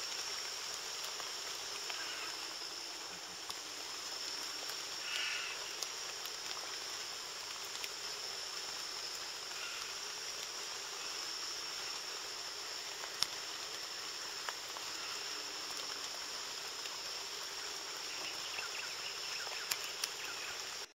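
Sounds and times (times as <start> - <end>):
insect drone: 0.0 - 20.9
soft hiss: 0.0 - 20.9
faint chirps: 1.7 - 3.0, 4.0 - 5.9, 17.8 - 20.9.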